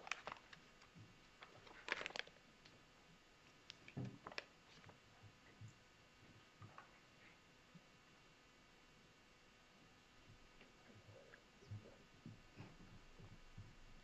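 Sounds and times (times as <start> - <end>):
faint clicks and rustles: 0.0 - 8.0.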